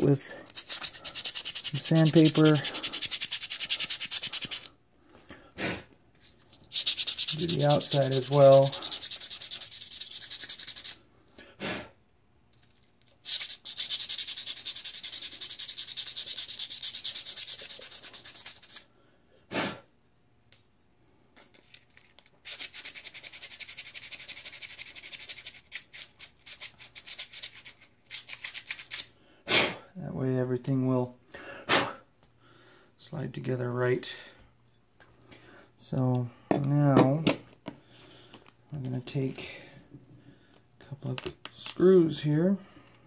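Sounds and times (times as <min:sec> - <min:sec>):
sandpaper rubbing on metal: 0:00.6 - 0:04.7, 0:06.7 - 0:11.0, 0:13.2 - 0:18.8, 0:22.4 - 0:29.1.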